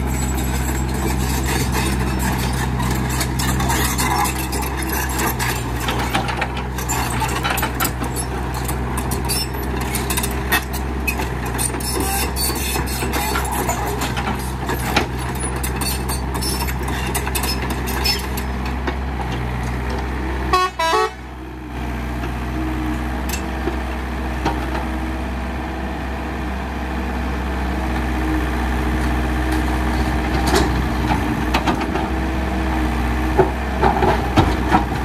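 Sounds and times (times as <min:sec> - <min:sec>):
heavy diesel engine running: 0:00.0 - 0:35.0
short horn toot: 0:20.5 - 0:21.2.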